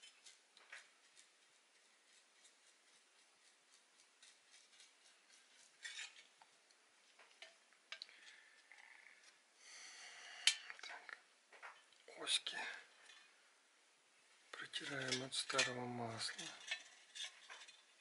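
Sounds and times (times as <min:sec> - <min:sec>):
small parts clicking and tapping: 0:00.0 - 0:06.6
rustle: 0:00.0 - 0:09.5.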